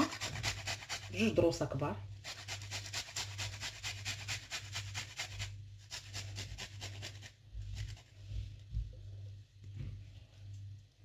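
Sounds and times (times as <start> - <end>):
garlic rasping on metal grater: 0.0 - 1.4, 2.2 - 7.2
steady low hum: 4.4 - 11.0.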